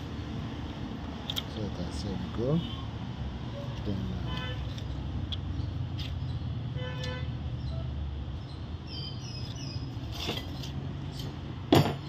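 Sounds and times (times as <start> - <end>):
passing traffic rumble: 0.0 - 12.0
vehicle horn toot: 6.8 - 7.3.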